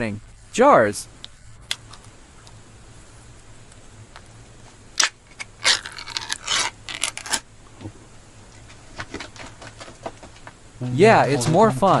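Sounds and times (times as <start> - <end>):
metal lid scraping and tearing: 5.0 - 7.4.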